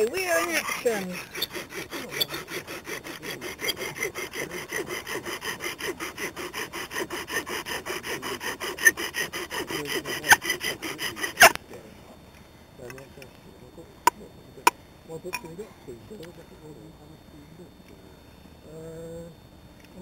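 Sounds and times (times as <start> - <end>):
wooden spindle grinding: 0.0 - 11.6.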